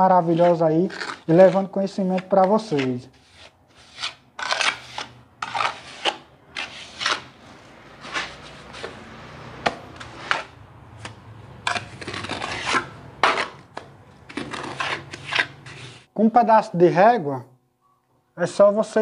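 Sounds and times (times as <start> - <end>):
trowel scraping wet mortar: 0.0 - 7.4, 8.0 - 9.2, 9.8 - 16.1.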